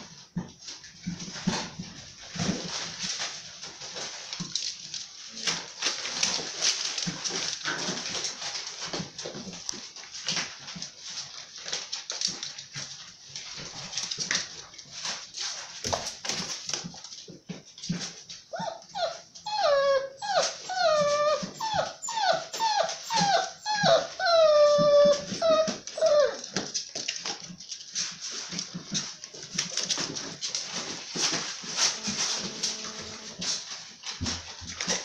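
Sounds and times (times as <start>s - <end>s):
puppies scuffling: 0.0s - 35.0s
high whining puppy yelps: 18.5s - 26.4s, 31.9s - 33.5s
puppy yipping: 18.5s - 26.4s, 31.9s - 33.4s.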